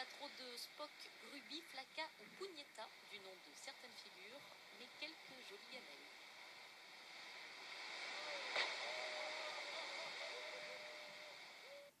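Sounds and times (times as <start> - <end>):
rushing spray and wind: 2.8 - 11.8.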